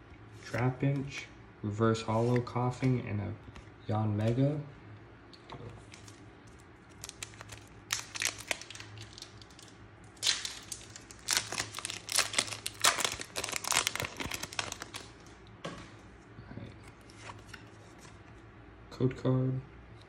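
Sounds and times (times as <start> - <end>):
crackling foil: 5.9 - 15.4
foil wrapper crinkling and tearing: 6.0 - 15.3.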